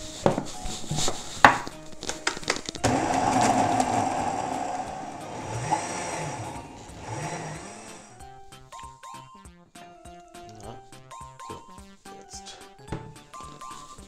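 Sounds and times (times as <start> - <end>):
blender whirring: 2.8 - 8.2.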